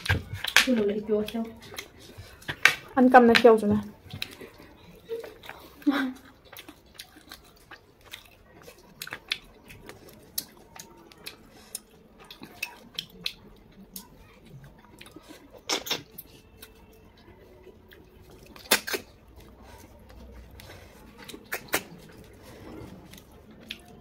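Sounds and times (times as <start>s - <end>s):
mouth sucking sounds: 21.4s - 22.4s.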